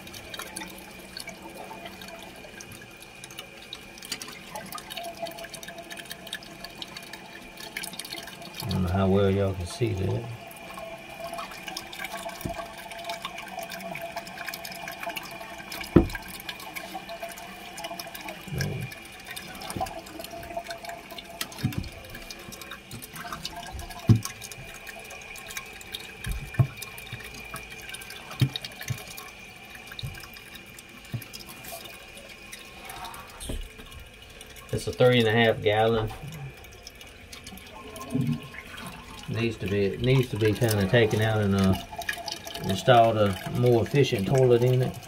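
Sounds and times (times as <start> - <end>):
water refilling toilet tank: 0.0 - 45.0
knocks against porcelain tank: 15.9 - 16.2.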